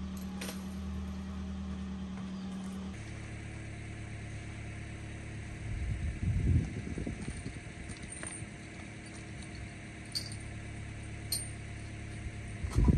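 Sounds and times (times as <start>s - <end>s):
car engine humming: 0.0s - 12.9s
loud low rumble: 3.0s - 12.9s.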